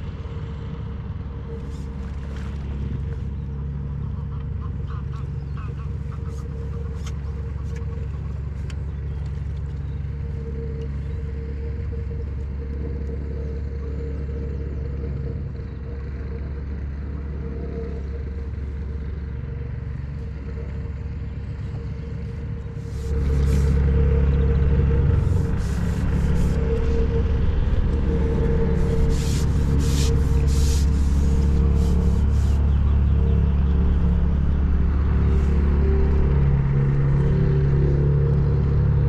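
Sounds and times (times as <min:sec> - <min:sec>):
constant hum: 0:00.0 - 0:39.0
steady low rumble: 0:00.0 - 0:39.0.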